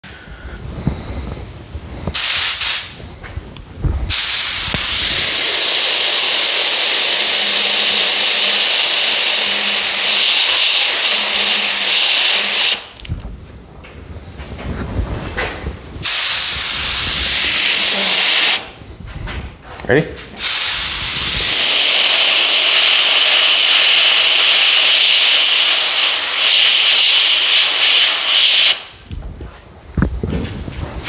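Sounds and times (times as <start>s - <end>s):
paint spray gun hissing: 2.2s - 3.0s, 4.1s - 13.0s, 16.0s - 18.7s, 20.4s - 29.0s.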